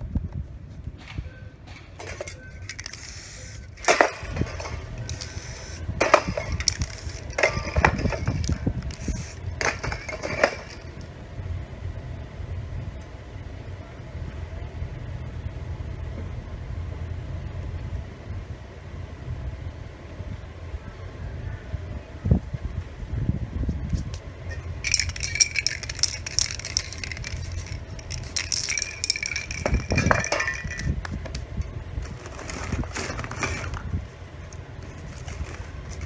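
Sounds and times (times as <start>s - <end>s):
low background rumble: 0.0s - 36.0s
spray paint can hissing: 2.7s - 3.7s, 5.1s - 5.8s, 6.5s - 7.4s, 8.4s - 9.5s, 24.8s - 30.9s.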